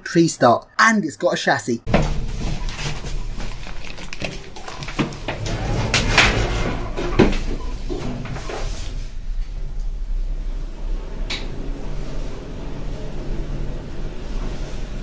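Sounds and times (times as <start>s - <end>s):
lift travelling with low hum: 4.4s - 15.0s
lift doors swishing shut: 4.9s - 9.8s.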